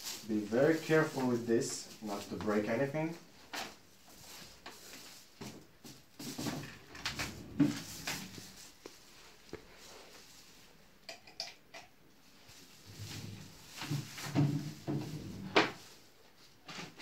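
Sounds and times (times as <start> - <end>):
tv knocking and rustling: 5.4 - 8.5, 13.8 - 15.9.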